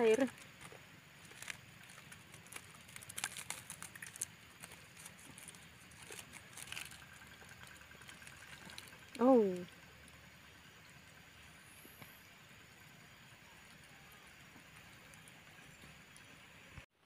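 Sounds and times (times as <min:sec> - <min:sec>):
plastic sachets crinkling: 0:00.0 - 0:09.2.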